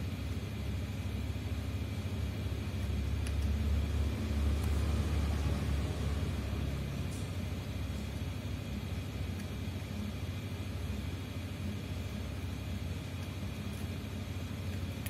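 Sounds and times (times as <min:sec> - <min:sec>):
low rumble with hum: 0:00.0 - 0:15.0.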